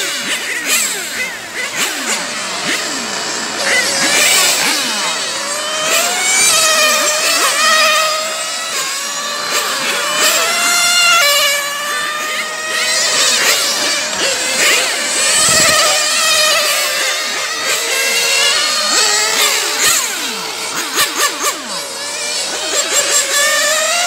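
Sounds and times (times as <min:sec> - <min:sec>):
electric motors whining: 0:00.0 - 0:24.0.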